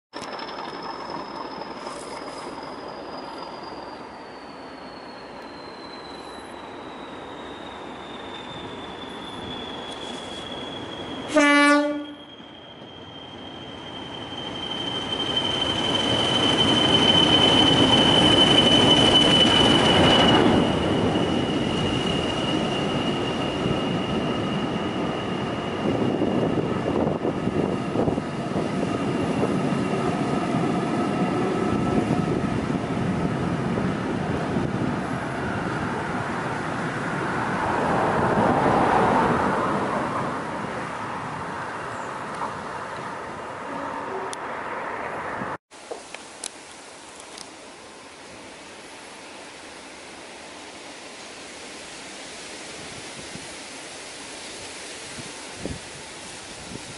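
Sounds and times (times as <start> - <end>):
locomotive engine noise: 0.2 - 11.4
turbocharger whistle: 0.8 - 26.4
train horn blast: 11.3 - 12.2.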